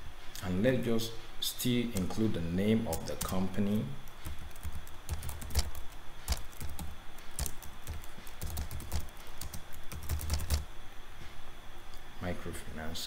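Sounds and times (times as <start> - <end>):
computer keyboard typing: 2.9 - 10.7.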